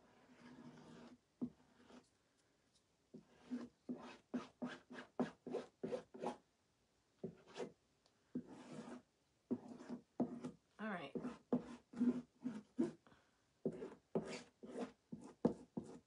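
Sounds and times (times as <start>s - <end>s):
fingertips rubbing on a board: 0.3s - 2.0s, 8.4s - 10.5s, 11.1s - 13.0s.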